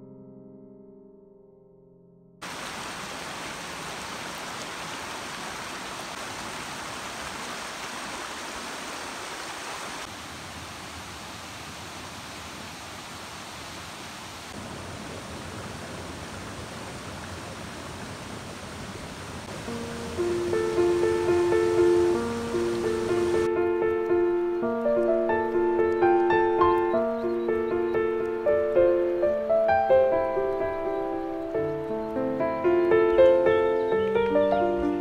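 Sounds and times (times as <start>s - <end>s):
flowing water rushing: 2.4s - 23.5s.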